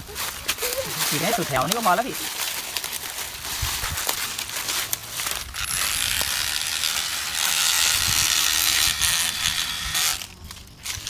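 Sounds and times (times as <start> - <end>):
high-pitched mechanical whirring: 5.5 - 11.0.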